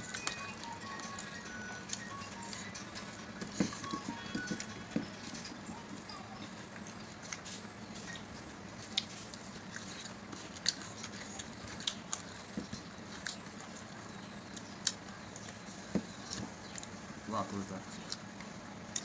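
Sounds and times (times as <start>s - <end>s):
faint steady hum: 0.0s - 19.0s
chewing and eating smacks: 6.4s - 17.0s, 17.8s - 19.0s.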